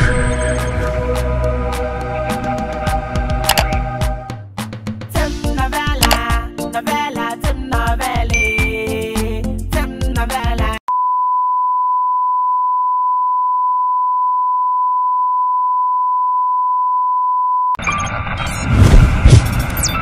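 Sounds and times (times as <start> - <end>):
music: 0.0 - 10.8
steady test tone beep: 10.9 - 17.8.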